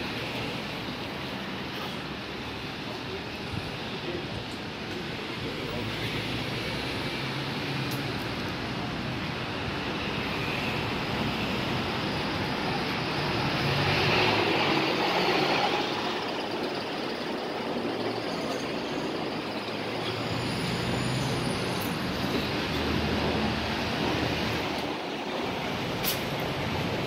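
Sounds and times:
passing cars and bus: 0.0s - 27.0s.

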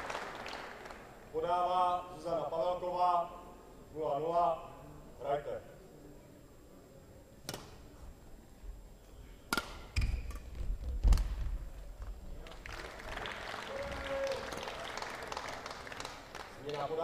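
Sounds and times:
crowd applauding: 0.0s - 1.2s, 12.4s - 17.0s
rackets striking shuttlecock: 7.4s - 7.8s, 9.5s - 11.3s.

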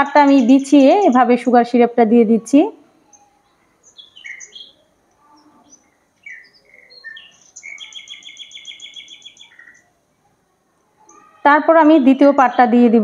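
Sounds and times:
small bird chirping and trilling: 0.0s - 1.5s, 3.0s - 9.9s, 11.0s - 11.4s.

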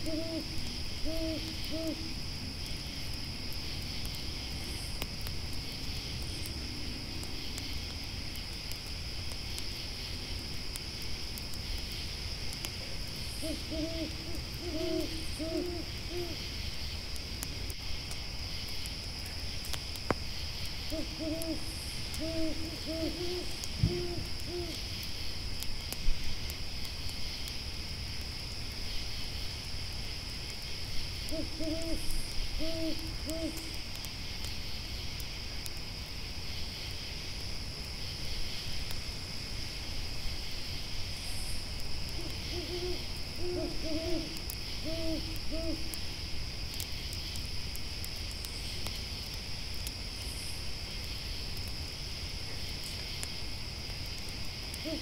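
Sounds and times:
owl hooting: 0.0s - 2.1s, 13.3s - 16.4s, 20.9s - 24.8s, 31.3s - 33.8s, 42.1s - 46.0s
campfire crackling: 0.0s - 55.0s
grasshoppers chirring: 0.0s - 55.0s.

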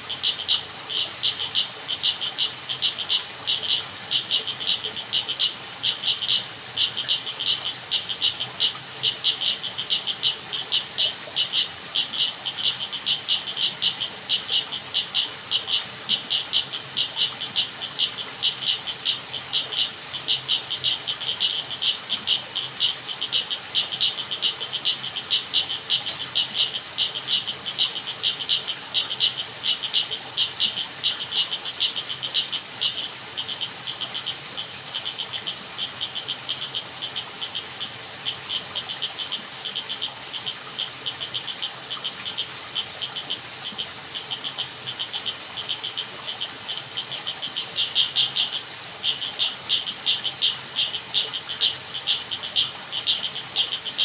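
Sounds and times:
chorus of frogs calling: 0.0s - 54.0s.

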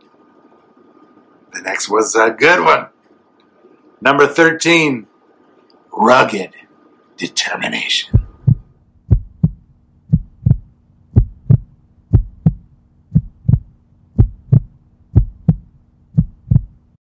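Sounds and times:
faint steady hum: 0.0s - 17.0s
heartbeat thumps: 8.1s - 16.9s.

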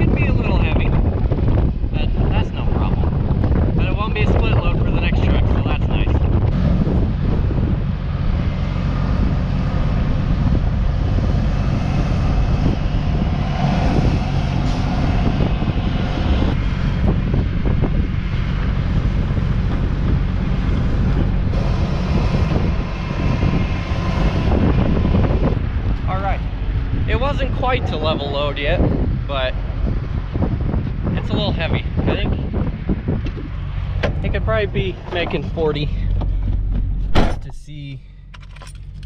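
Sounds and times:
machinery rushing: 0.0s - 36.0s
combine engine drone: 0.0s - 39.0s.

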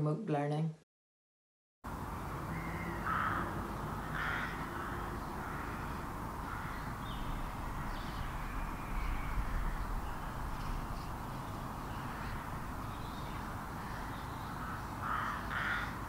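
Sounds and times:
faint bird calls: 2.1s - 16.0s
crow cawing: 2.5s - 16.0s
low rumble: 5.2s - 14.8s.

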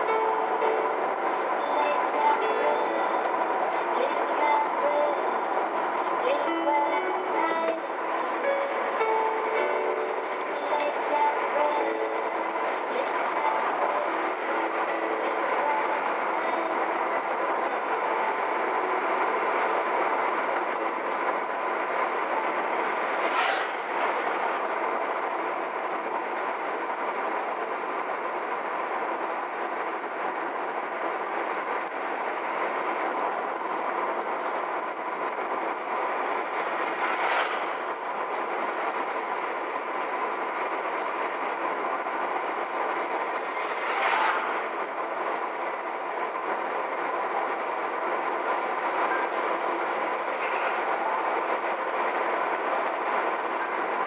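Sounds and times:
tyre and road noise: 0.0s - 54.0s
brief swishes: 23.2s - 24.2s.

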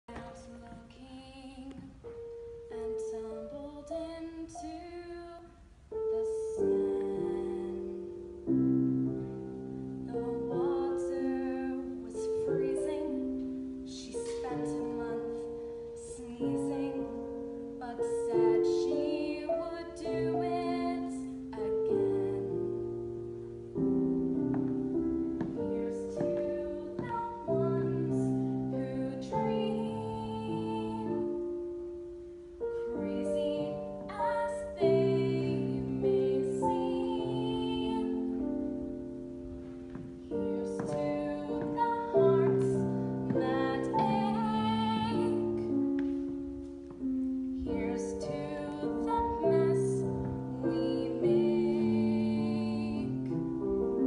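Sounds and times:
piano chords and notes: 0.0s - 54.0s.

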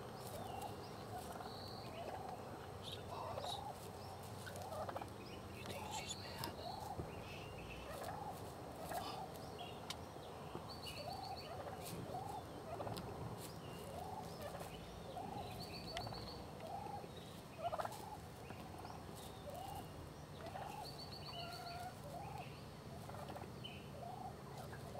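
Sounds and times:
turkeys calling: 0.0s - 24.9s.

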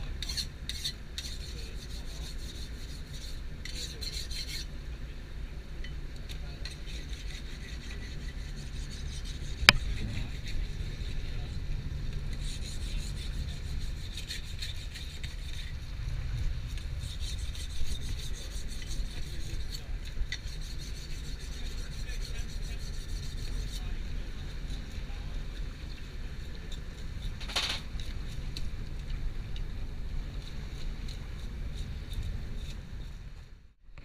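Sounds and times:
knife rasping on stone: 0.2s - 4.7s, 6.6s - 11.0s, 12.3s - 15.7s, 16.7s - 23.9s
steady low rumble: 7.8s - 34.0s.

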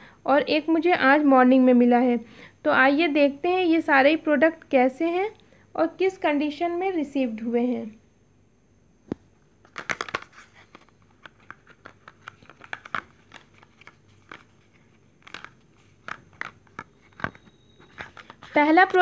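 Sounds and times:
packaging crinkling and rustling: 9.6s - 19.0s.

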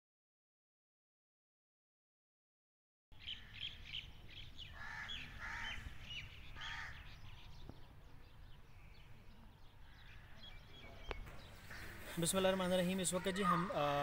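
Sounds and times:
birds calling: 3.1s - 14.0s
birds chirping: 3.1s - 14.0s.

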